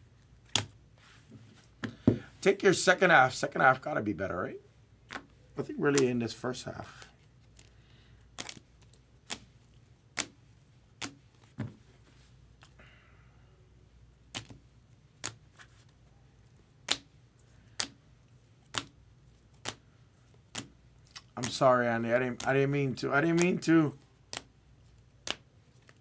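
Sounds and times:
cards clicking on a table: 23.3s - 23.7s.

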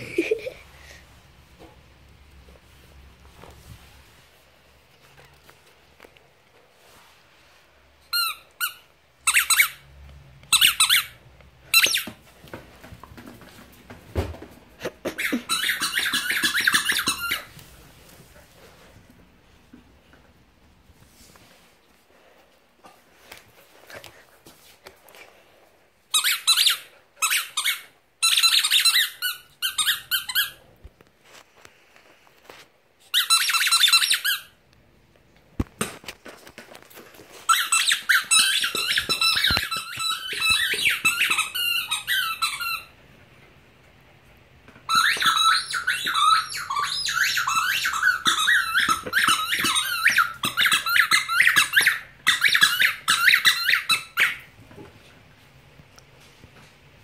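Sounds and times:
squeaky dog toy squeaking: 8.0s - 9.8s, 10.5s - 12.1s, 15.1s - 17.5s, 26.1s - 30.6s, 33.1s - 34.6s, 37.5s - 42.9s, 44.9s - 54.5s.

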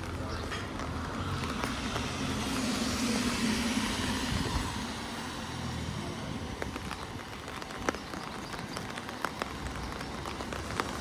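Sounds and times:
vehicle driving past: 1.0s - 6.2s.

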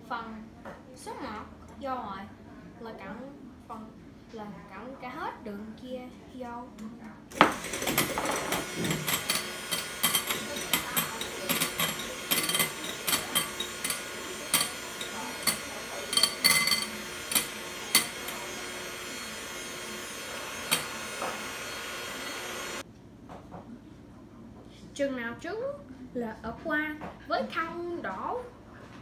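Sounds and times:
electric hand mixer running: 7.3s - 22.8s
beaters clicking against glass: 7.5s - 18.4s.

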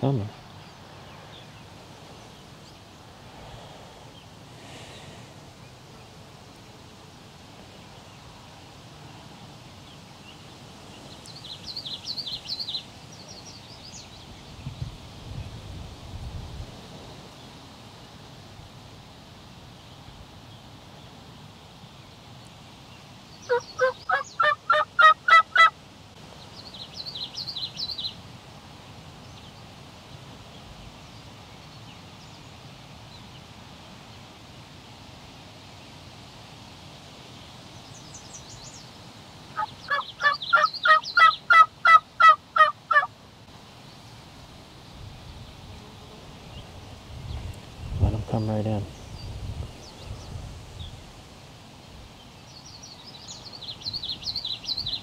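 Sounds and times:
turkey yelping: 23.5s - 25.7s, 39.6s - 43.1s.

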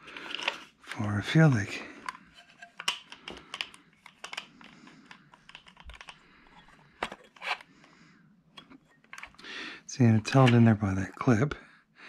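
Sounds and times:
light clicks and taps of parts: 2.0s - 7.2s.

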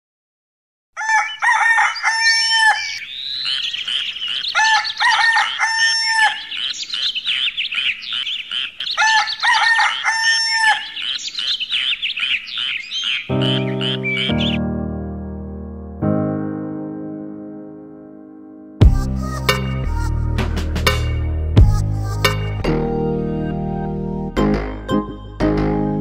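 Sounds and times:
loud pitched bird call: 1.0s - 14.6s
small birds chirping: 1.2s - 14.6s.

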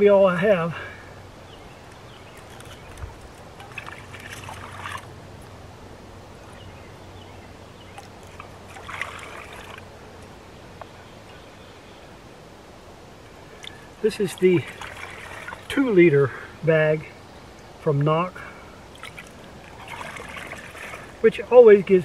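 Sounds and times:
water sloshing and trickling: 1.8s - 11.4s, 13.4s - 16.4s, 18.7s - 22.0s.

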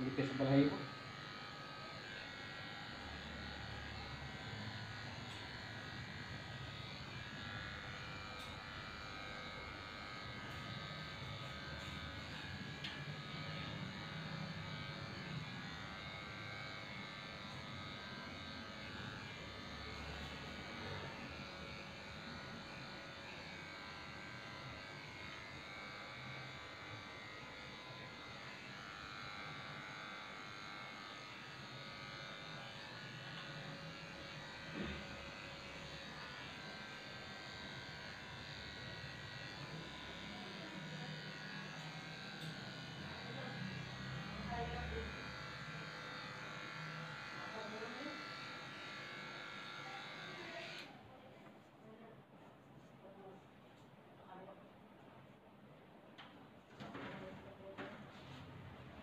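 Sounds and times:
electric clippers buzzing: 0.0s - 51.0s.

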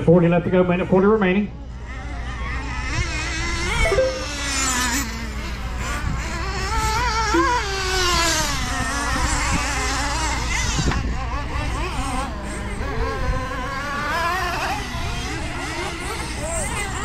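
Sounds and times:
rc truck engines buzzing: 1.6s - 17.0s.

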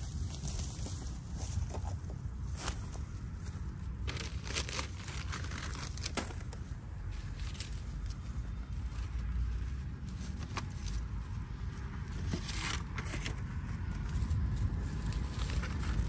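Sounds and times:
plastic crinkling: 4.0s - 11.3s.

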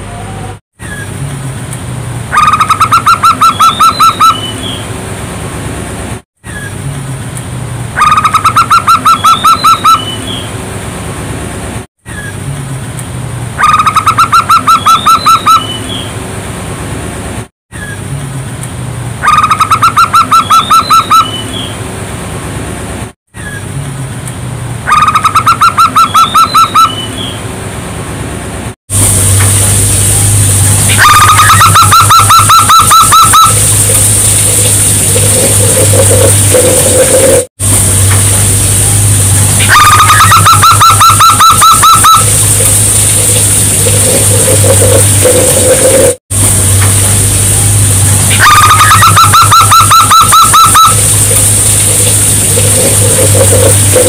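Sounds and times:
steady hiss: 28.9s - 40.4s, 41.8s - 49.1s, 49.7s - 54.0s.

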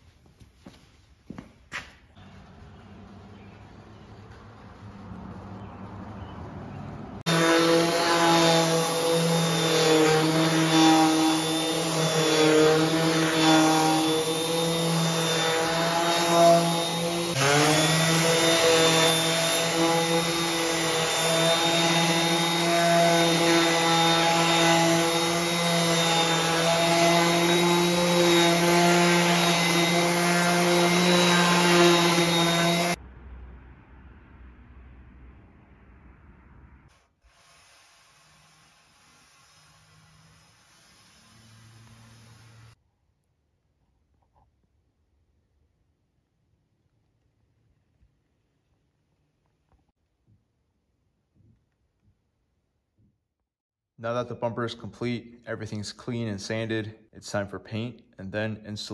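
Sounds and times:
orbital sander on steel: 7.2s - 33.0s, 37.1s - 42.8s.

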